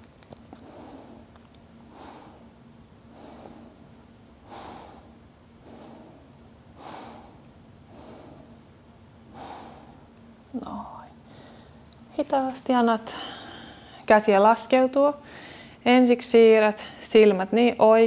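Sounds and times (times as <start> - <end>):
faint steady hum: 0.0 - 18.0
woman breathing deeply: 0.5 - 8.7, 9.3 - 10.1, 11.2 - 11.9, 13.1 - 14.1, 15.2 - 15.8.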